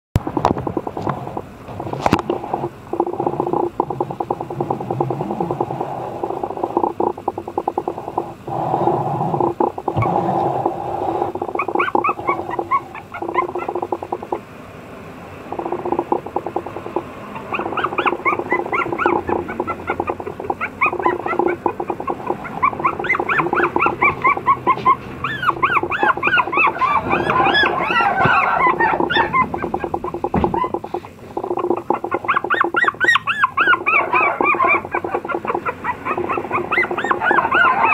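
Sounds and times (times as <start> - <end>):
steady low hum: 0.2 - 37.9
puppies whining and squeaking: 9.3 - 10.2, 11.2 - 14.4, 15.5 - 37.9.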